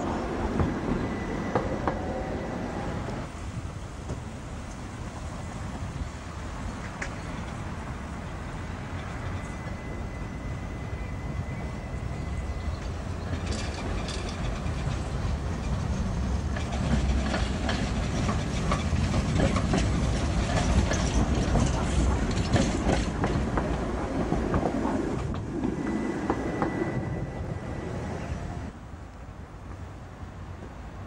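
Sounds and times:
tram rumbling past: 0:00.0 - 0:31.0
faint high whine: 0:08.5 - 0:12.9
wheels clicking over rail joints: 0:12.7 - 0:26.8.

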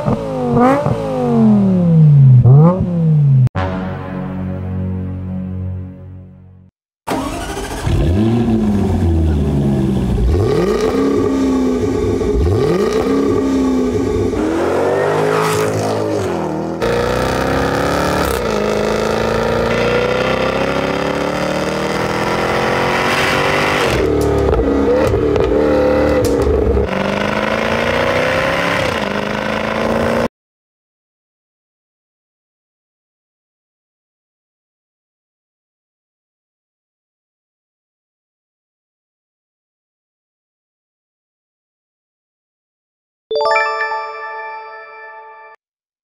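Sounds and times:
sports car engine revving: 0:00.0 - 0:03.5, 0:07.2 - 0:30.3.

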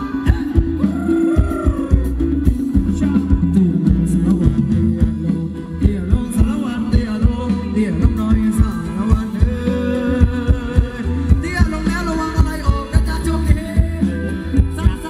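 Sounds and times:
live band dance music: 0:00.0 - 0:15.0
person singing: 0:00.0 - 0:15.0
steady drum beat: 0:00.0 - 0:15.0.

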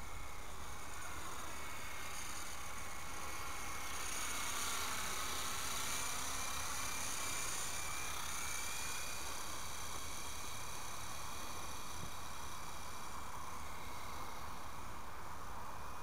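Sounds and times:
small rc helicopter whining: 0:00.0 - 0:16.0.

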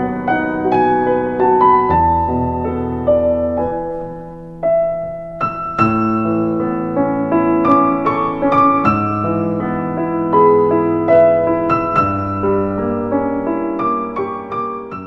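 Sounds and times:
slow piano melody: 0:00.0 - 0:15.0.

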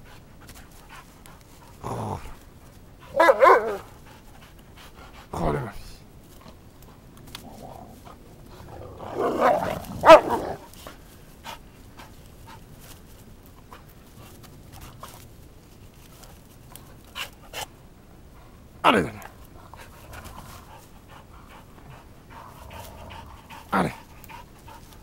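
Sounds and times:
dog barking and whining: 0:03.1 - 0:03.9, 0:08.7 - 0:10.7.

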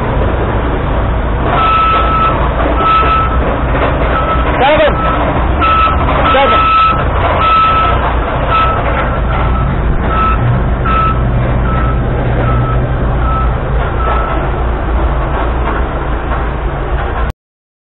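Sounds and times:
vehicle engine running: 0:00.0 - 0:17.3
reversing alarm beeping: 0:01.6 - 0:03.5, 0:04.1 - 0:14.4.

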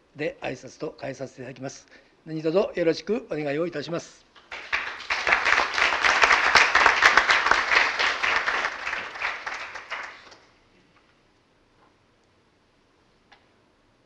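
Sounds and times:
people applauding: 0:04.4 - 0:10.5.

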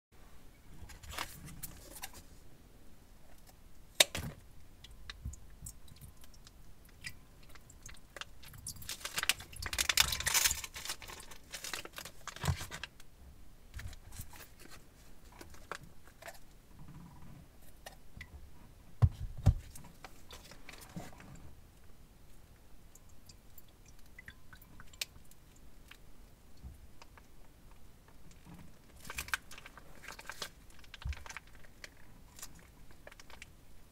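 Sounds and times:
plastic bags crinkling: 0:07.8 - 0:13.0, 0:28.9 - 0:33.5.

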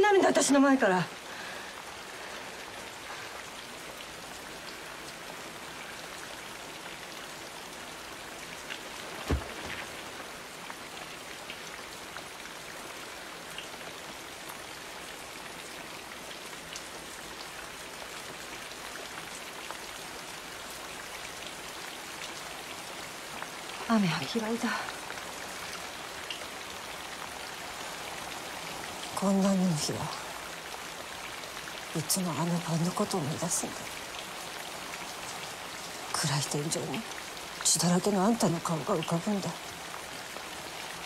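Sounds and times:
steady rain: 0:00.0 - 0:41.0
low thud: 0:09.2 - 0:10.0.

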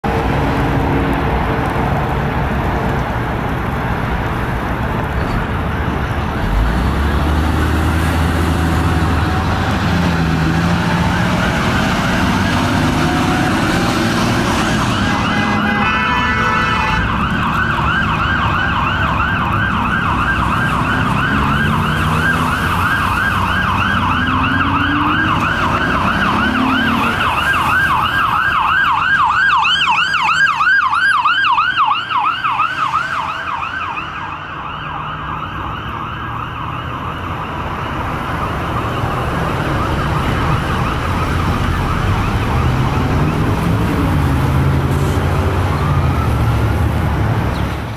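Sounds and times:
road traffic engines: 0:00.0 - 0:47.9
ambulance siren yelp: 0:08.7 - 0:47.2
horn blast: 0:12.2 - 0:17.2.

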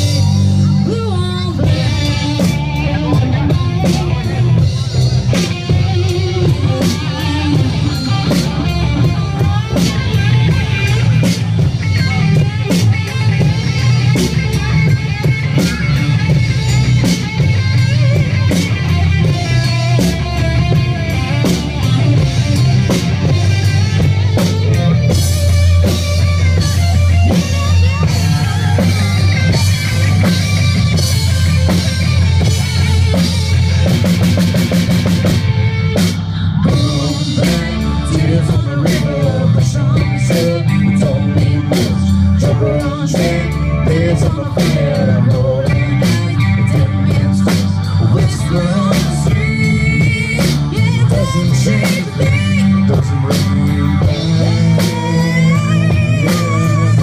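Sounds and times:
live rock band playing: 0:00.0 - 0:57.0
woman singing: 0:00.8 - 0:02.2, 0:36.7 - 0:57.0.

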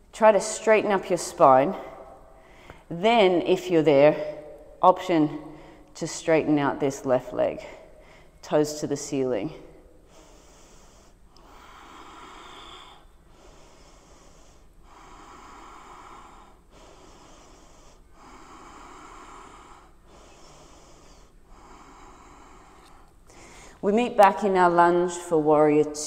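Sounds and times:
woman breathing slowly: 0:01.7 - 0:02.9, 0:04.3 - 0:06.0, 0:07.6 - 0:08.5, 0:09.6 - 0:23.9.

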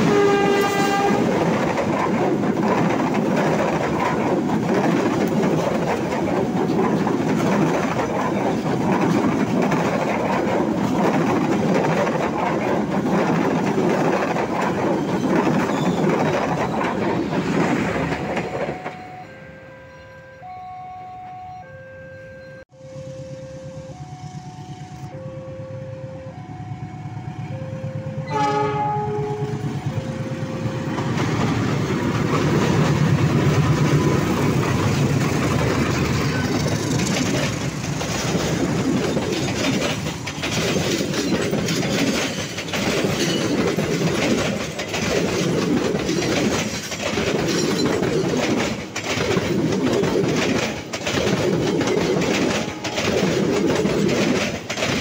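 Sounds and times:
locomotive horn blast: 0:00.0 - 0:01.4, 0:19.2 - 0:30.6
train wheels clattering: 0:00.0 - 0:19.1, 0:28.3 - 0:55.0
diesel locomotives running: 0:00.0 - 0:55.0
level crossing alarm tones: 0:17.8 - 0:31.2.

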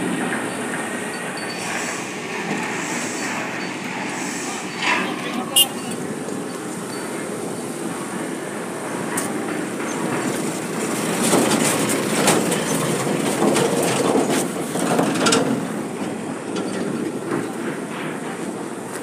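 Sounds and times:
truck and forklift engines: 0:00.0 - 0:19.0
metallic rattles and clanks: 0:09.8 - 0:18.4.

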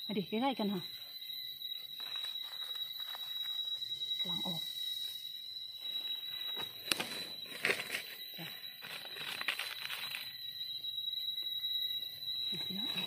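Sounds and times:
dry leaves rustling: 0:02.0 - 0:03.8, 0:08.8 - 0:10.4.

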